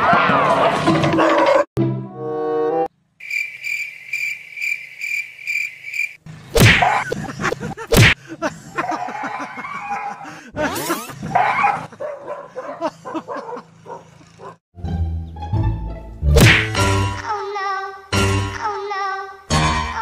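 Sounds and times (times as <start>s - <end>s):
cricket-like chirping: 3.2s - 6.2s.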